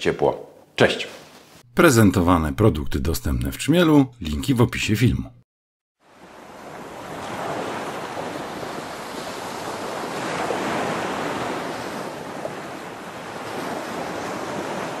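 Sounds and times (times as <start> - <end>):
rushing water: 6.0 - 15.0.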